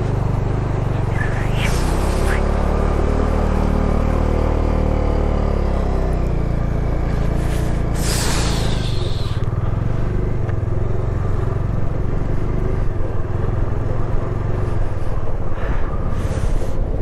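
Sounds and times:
motorcycle engine running: 0.0s - 16.0s
road noise: 0.0s - 17.0s.

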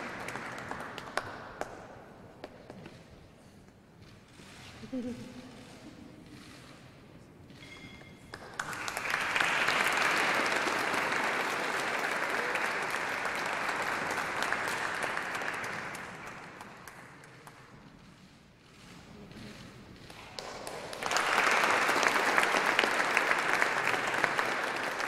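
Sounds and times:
audience applauding: 0.0s - 1.8s, 8.3s - 17.7s, 20.1s - 25.0s.

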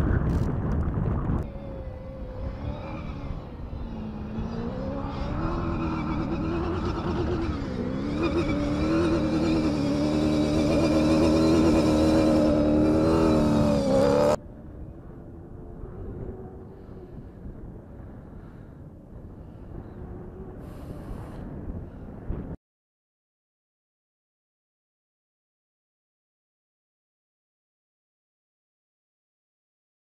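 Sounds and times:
wind on microphone: 0.0s - 22.6s
rally car engine revving: 1.5s - 14.4s.

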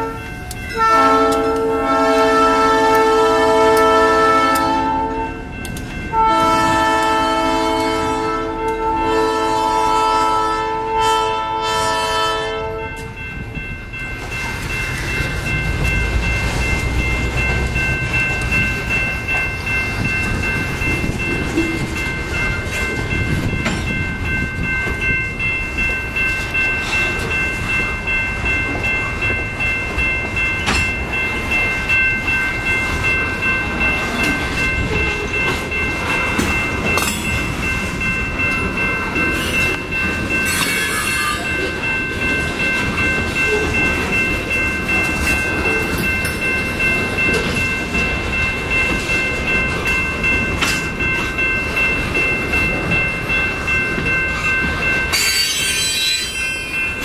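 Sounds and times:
crossing bell ringing: 0.0s - 57.0s
freight train wheels rumbling: 0.0s - 57.0s
locomotive air horn: 0.8s - 5.2s, 6.1s - 12.9s.

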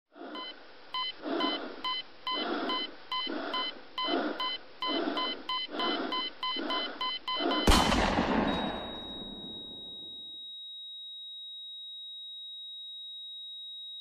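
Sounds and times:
muffled filtered pulses: 0.2s - 10.1s
synthetic beeps: 0.4s - 7.7s, 8.4s - 10.3s.

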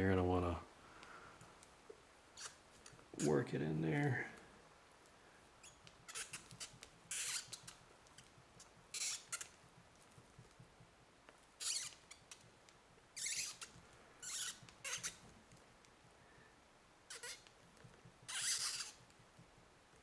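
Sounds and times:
screw squeaking into rubber: 2.4s - 3.4s, 5.6s - 9.6s, 11.6s - 12.5s, 13.2s - 15.3s, 17.1s - 17.6s, 18.2s - 19.1s.

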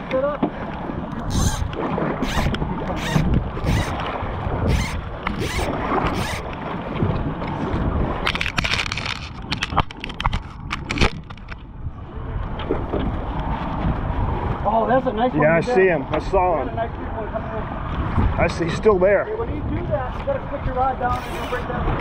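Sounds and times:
fly line zipping rasp: 1.3s - 4.0s, 4.6s - 6.5s, 21.1s - 21.6s.

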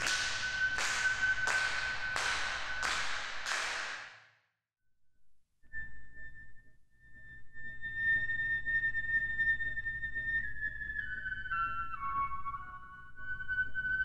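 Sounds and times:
hand clap with echo: 0.0s - 4.2s.

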